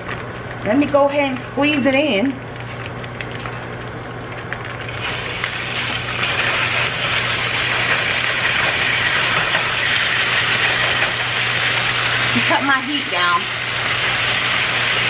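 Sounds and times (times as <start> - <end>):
chicken sizzling in hot oil: 4.8 - 15.0.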